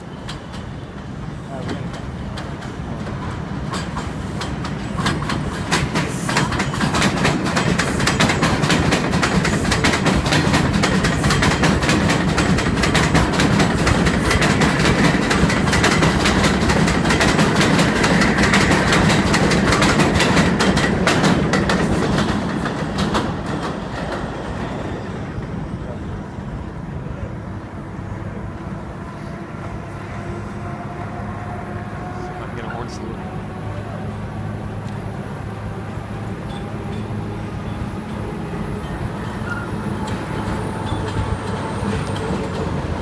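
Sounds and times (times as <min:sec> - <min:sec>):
train wheels clattering over rail joints: 0:00.0 - 0:25.5, 0:36.4 - 0:43.0.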